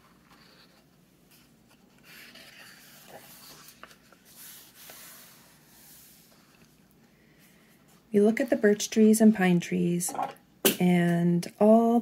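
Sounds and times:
paper rustling and sliding: 0:00.0 - 0:06.7.

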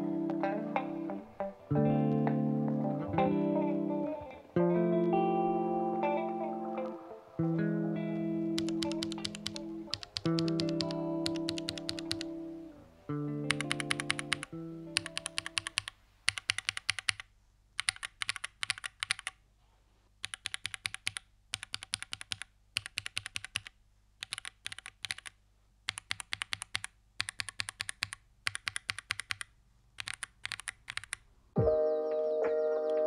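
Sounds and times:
typing on mechanical keyboard: 0:08.6 - 0:12.3, 0:13.5 - 0:19.4, 0:20.2 - 0:31.2.

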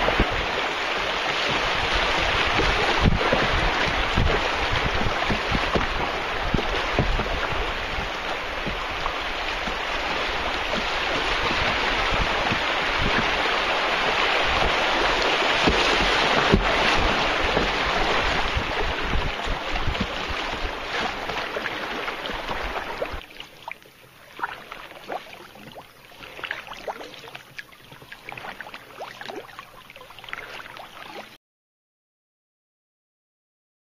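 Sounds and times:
river water rushing: 0:00.0 - 0:31.4
wind buffeting microphone: 0:01.5 - 0:23.3.

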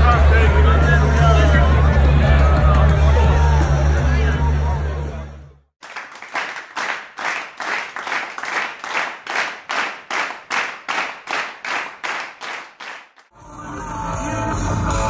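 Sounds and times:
audience clapping in time: 0:05.8 - 0:13.3.

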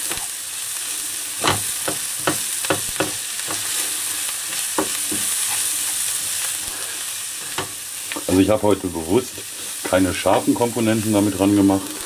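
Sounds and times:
food sizzling in a frying pan: 0:00.0 - 0:12.0
wooden spatula scraping a pan: 0:03.4 - 0:06.8.

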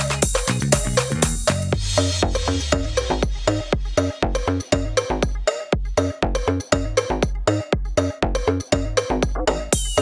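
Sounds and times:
heavy bass hits: 0:00.0 - 0:05.3
electronic dance music: 0:00.0 - 0:10.0.

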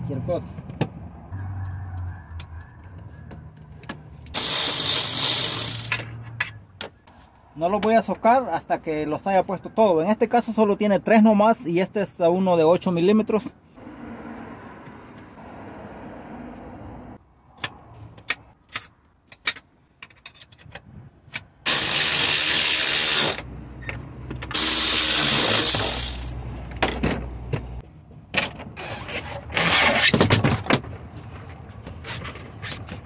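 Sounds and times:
power tool running in bursts: 0:04.4 - 0:05.9, 0:21.7 - 0:23.4, 0:24.5 - 0:26.3
metal parts clicking and clinking: 0:04.4 - 0:06.2, 0:24.6 - 0:26.4.

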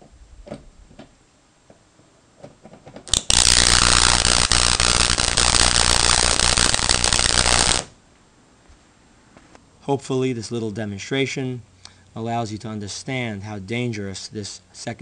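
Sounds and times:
electric arc buzzing: 0:03.1 - 0:08.0.

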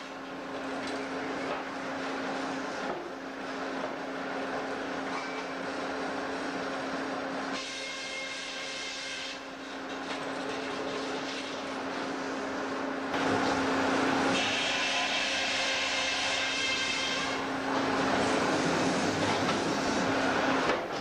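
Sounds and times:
sawmill mechanical hum: 0:00.0 - 0:21.0
high saw whine: 0:14.3 - 0:19.2.

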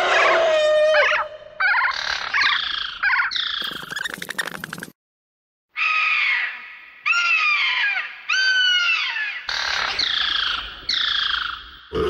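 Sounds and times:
shrill creature screeches: 0:00.0 - 0:01.9.

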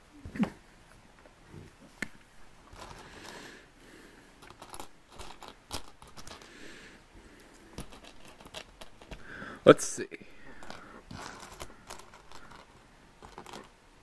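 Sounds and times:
soft shuffling of pieces: 0:00.2 - 0:03.6, 0:04.3 - 0:14.0
plastic bricks clicking: 0:04.4 - 0:06.5, 0:10.5 - 0:13.8.

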